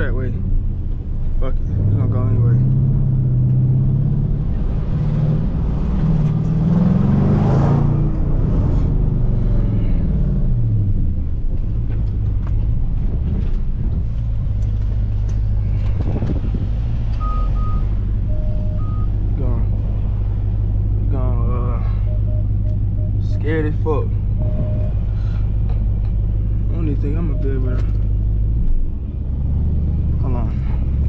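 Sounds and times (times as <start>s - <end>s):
car engine from inside cabin: 0.0s - 31.0s
parking sensor beeps: 17.2s - 19.1s, 21.8s - 23.8s, 24.4s - 25.0s, 27.0s - 27.9s.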